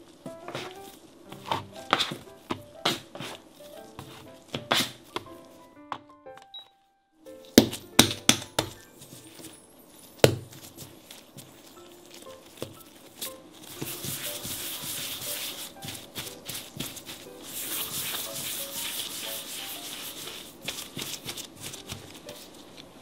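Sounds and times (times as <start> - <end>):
hands rubbing dough on counter: 0.4 - 5.7, 10.5 - 22.8.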